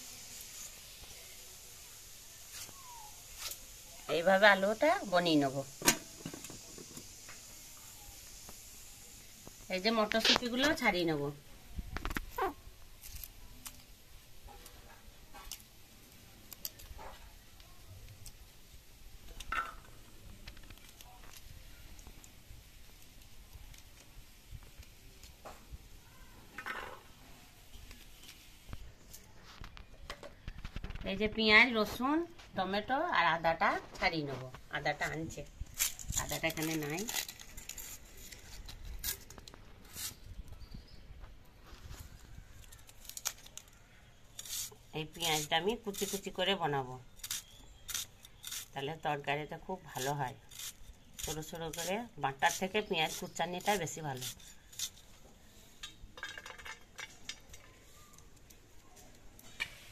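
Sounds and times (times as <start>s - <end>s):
onion skin rustling and crackling: 0.0s - 59.9s
pea pods snapping open: 42.5s - 43.8s.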